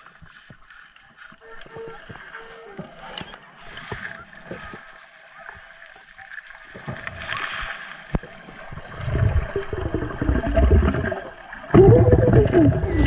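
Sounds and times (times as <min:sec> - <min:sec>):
underwater rumbling and gurgling: 0:00.0 - 0:13.0.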